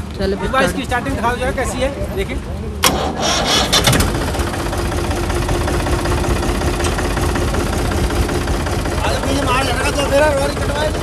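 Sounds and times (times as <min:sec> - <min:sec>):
tractor engine starting and idling: 0:02.8 - 0:11.0.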